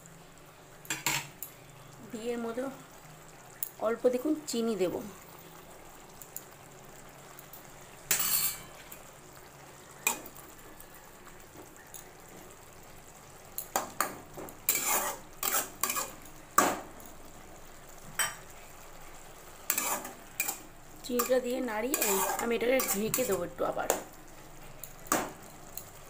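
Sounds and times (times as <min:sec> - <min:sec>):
metal spatula scraping a wok: 0:14.7 - 0:16.2, 0:19.7 - 0:20.6, 0:21.2 - 0:23.4.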